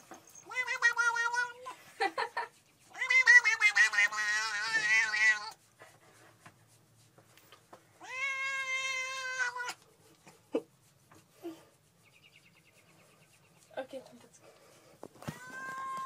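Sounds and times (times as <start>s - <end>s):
cat yowling: 0.4s - 1.7s, 2.9s - 5.6s, 8.0s - 9.8s, 15.2s - 16.0s.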